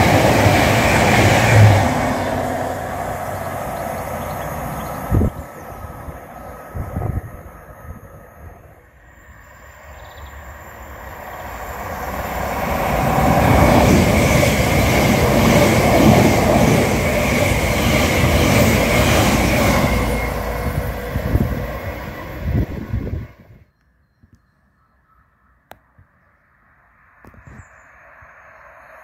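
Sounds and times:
train wheels rumbling on rails: 0.0 - 8.7, 10.2 - 23.6.

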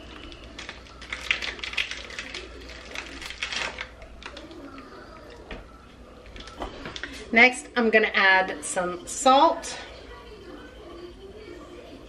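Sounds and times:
plastic packaging crinkling: 0.0 - 5.4.

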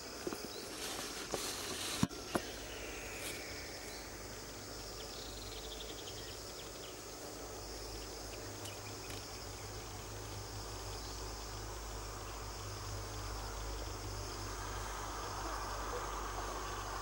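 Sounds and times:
insects chirping: 0.0 - 17.0.

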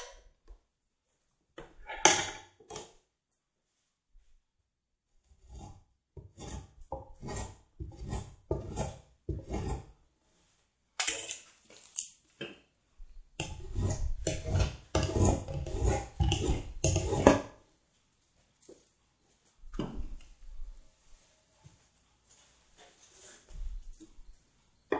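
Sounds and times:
hand tool shaving wood: 5.4 - 9.9, 13.4 - 17.4.

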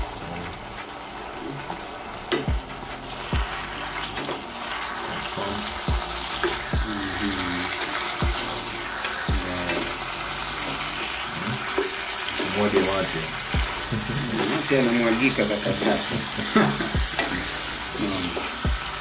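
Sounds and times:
food sizzling in a pot: 0.0 - 19.0.

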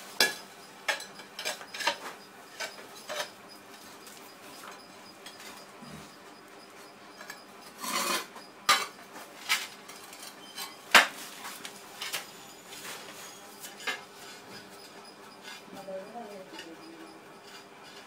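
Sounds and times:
tiles clinking and scraping: 0.0 - 6.2, 7.2 - 18.0.

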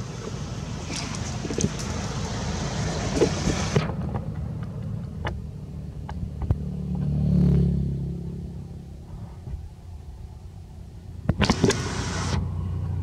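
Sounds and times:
vehicle engine passing: 0.0 - 13.0
wind-like rushing noise: 1.3 - 4.6.

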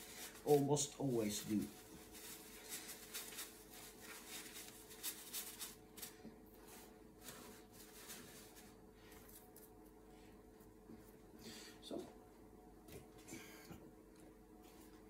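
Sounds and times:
paper towel rubbing: 0.0 - 8.8.

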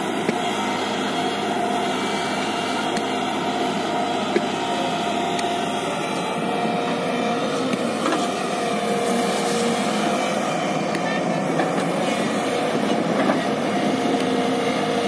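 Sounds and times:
excavator diesel engine droning: 0.0 - 15.0
bucket working sand: 7.7 - 10.4.

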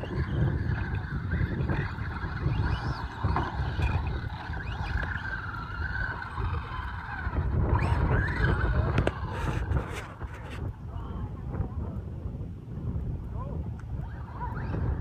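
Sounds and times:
toy truck motor whining: 0.0 - 10.6
wind on microphone: 0.0 - 15.0.

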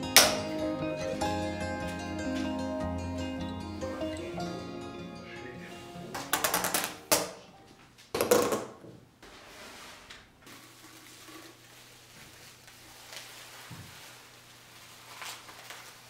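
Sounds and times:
plastic containers clattering: 6.2 - 9.0.

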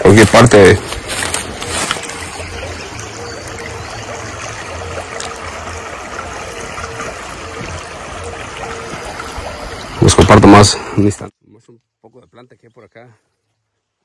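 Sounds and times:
river flowing over pebbles: 0.0 - 11.1.

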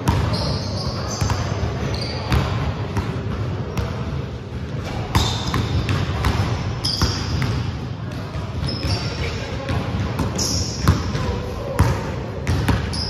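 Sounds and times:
basketball bouncing on wood floor: 0.0 - 0.3, 11.8 - 12.9
sneakers squeaking on wood: 0.1 - 2.5, 5.1 - 6.0, 8.6 - 9.2.

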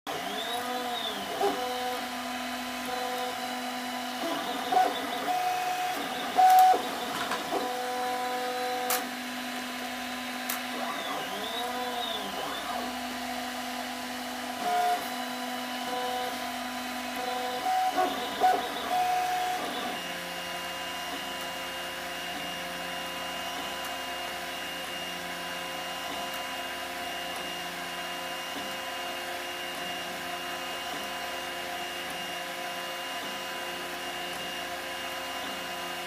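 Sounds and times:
stepper motors whining: 0.1 - 27.8.

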